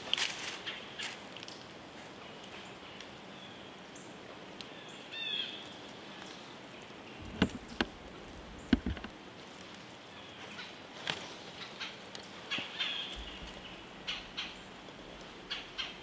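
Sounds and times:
steps crunching in dry leaves: 0:00.0 - 0:01.4.

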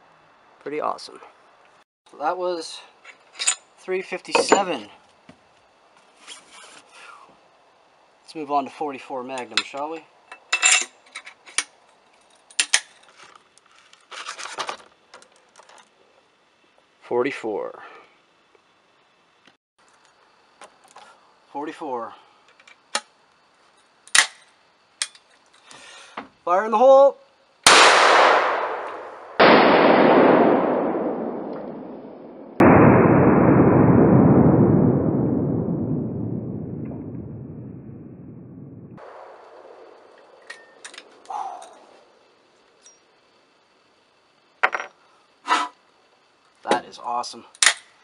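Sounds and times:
cartridges rattling in packaging: 0:12.5 - 0:15.8
gunshot boom: 0:27.7 - 0:39.9
slowed gunshot replay: 0:27.7 - 0:40.2.

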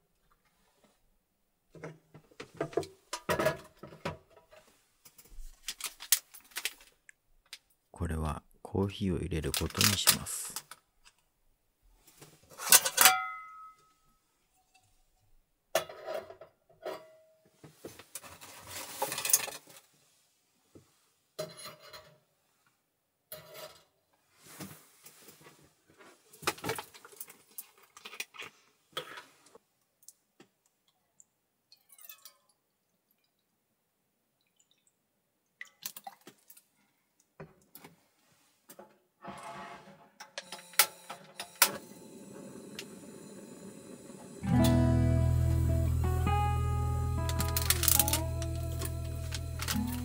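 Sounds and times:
metal cookware clinking and rattling: 0:12.6 - 0:13.8.

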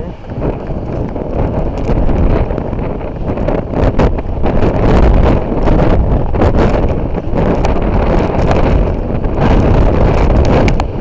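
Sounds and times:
strong wind gusts on microphone: 0:00.0 - 0:11.0.

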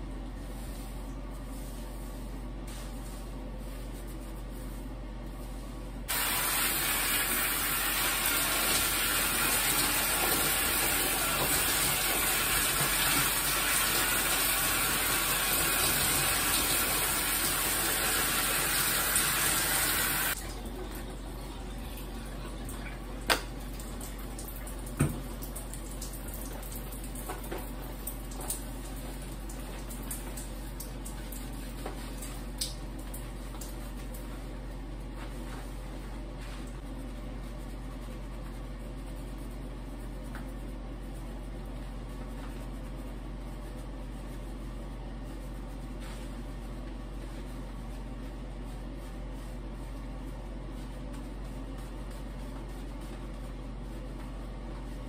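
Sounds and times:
shower spray hissing: 0:06.1 - 0:20.4.

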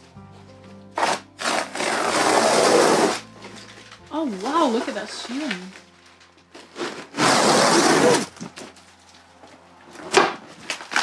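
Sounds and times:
ceiling lining tearing: 0:01.0 - 0:05.9, 0:06.5 - 0:08.8, 0:09.9 - 0:11.0.

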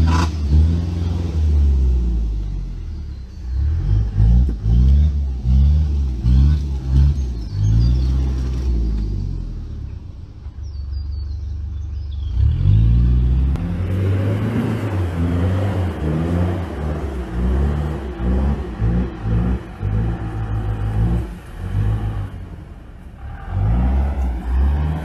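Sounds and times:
truck engine labouring: 0:10.4 - 0:25.0.

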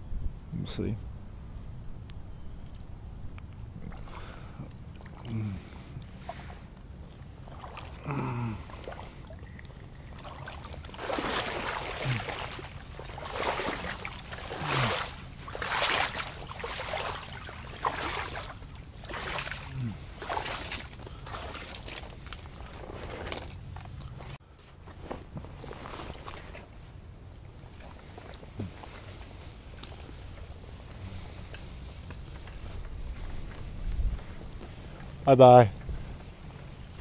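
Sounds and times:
sloshing steps in shallow water: 0:03.8 - 0:24.0.

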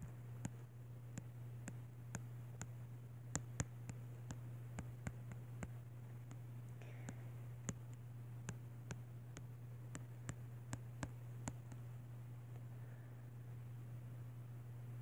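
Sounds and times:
taps on a touchscreen: 0:00.0 - 0:06.4, 0:07.1 - 0:11.9
steady low hum: 0:00.0 - 0:15.0.

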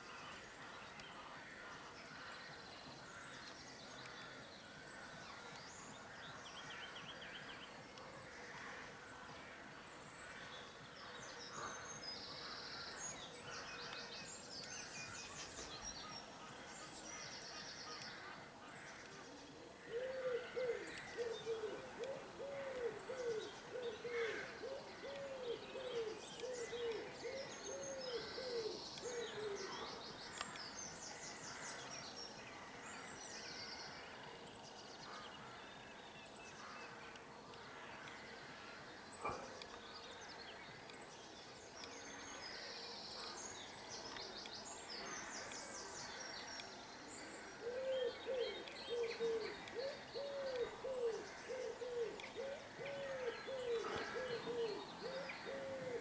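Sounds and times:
songbirds trilling and chirping: 0:00.0 - 0:56.0
wood pigeon cooing: 0:19.9 - 0:29.6, 0:47.6 - 0:56.0.

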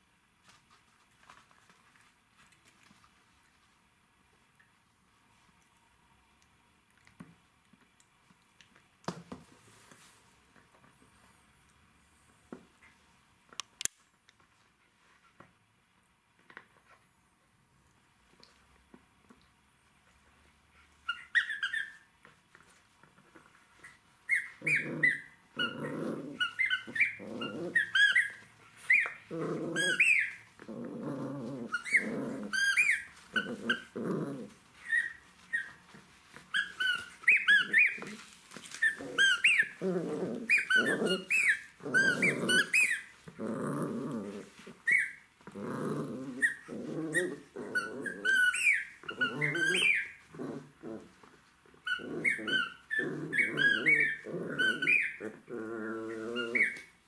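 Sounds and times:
squeaky toy squeaks: 0:21.1 - 0:22.0, 0:24.3 - 0:29.2, 0:36.5 - 0:38.0, 0:40.5 - 0:43.1, 0:46.4 - 0:50.2, 0:51.8 - 0:55.2, 0:56.4 - 0:56.8
puppy growling: 0:24.6 - 0:36.0, 0:36.6 - 0:56.9.

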